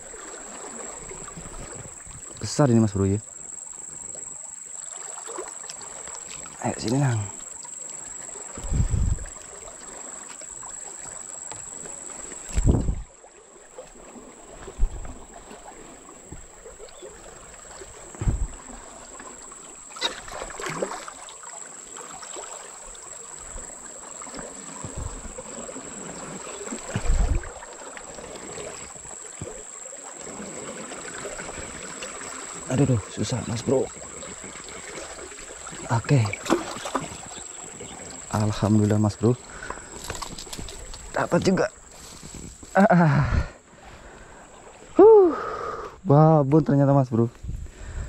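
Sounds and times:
short low thumps: 0:18.1 - 0:18.6, 0:26.9 - 0:27.5.

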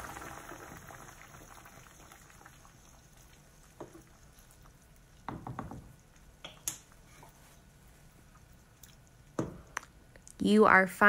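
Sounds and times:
wooden spoon stirring pot: 0:03.0 - 0:09.8
spoon knocking against pot: 0:05.3 - 0:06.8.

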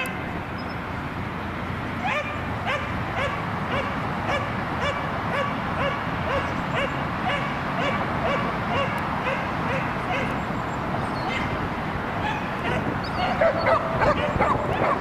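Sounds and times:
dog barking: 0:02.0 - 0:10.4, 0:12.2 - 0:15.0.

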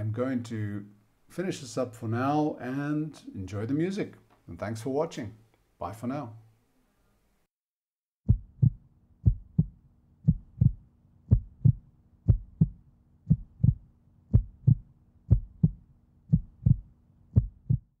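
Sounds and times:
heartbeat thumps: 0:08.3 - 0:18.0.

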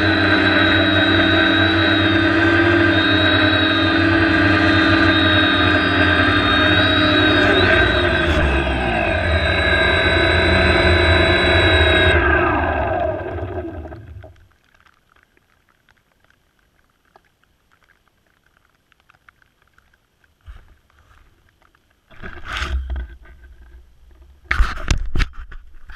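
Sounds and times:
drone motors whining down: 0:00.0 - 0:14.4.

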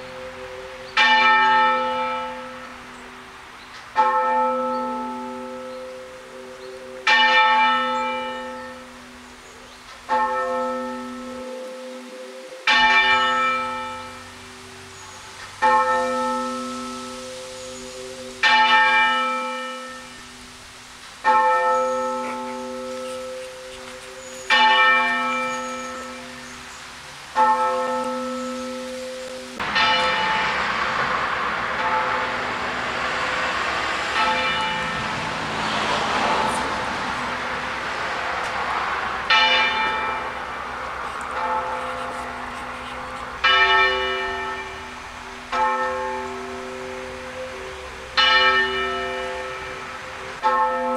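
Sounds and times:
church bell tolling: 0:00.0 - 0:09.4, 0:10.1 - 0:20.4, 0:21.2 - 0:26.6, 0:27.3 - 0:50.9
steady rushing noise: 0:29.6 - 0:43.4.

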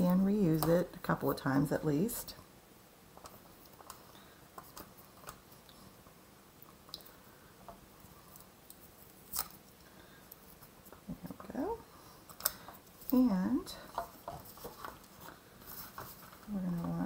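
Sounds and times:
light paper rustles: 0:13.9 - 0:17.0.

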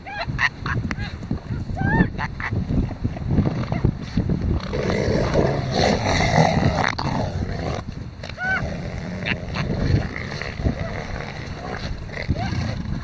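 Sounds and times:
elephant seals grunting and growling: 0:04.6 - 0:13.0.

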